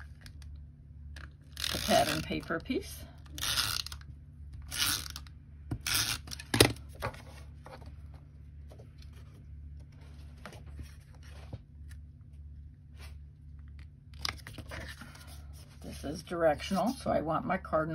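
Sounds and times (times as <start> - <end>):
paper handling: 14.2 - 17.0.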